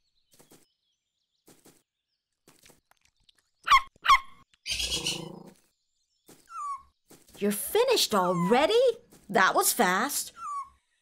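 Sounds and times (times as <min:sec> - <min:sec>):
cartoon animal squeaking yelps: 0:10.3 - 0:10.7.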